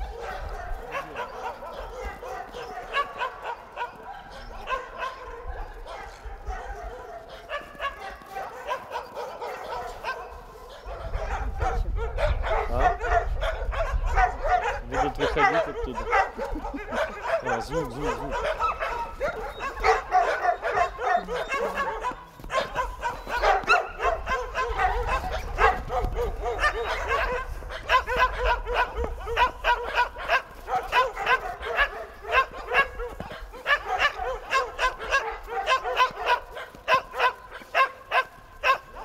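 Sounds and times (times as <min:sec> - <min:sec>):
dogs barking and yipping: 0:00.0 - 0:39.0.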